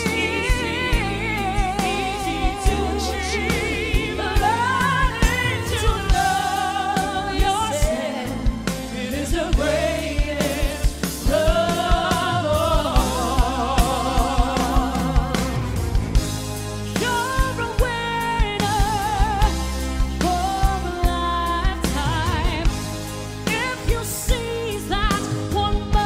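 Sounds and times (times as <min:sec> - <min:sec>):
man and woman singing: 0:00.0 - 0:15.7
band with bass and drums: 0:00.0 - 0:26.0.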